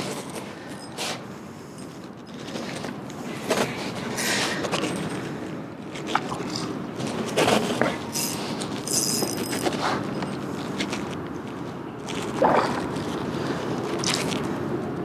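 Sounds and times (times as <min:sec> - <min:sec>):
rod and line handling: 0:05.9 - 0:14.5.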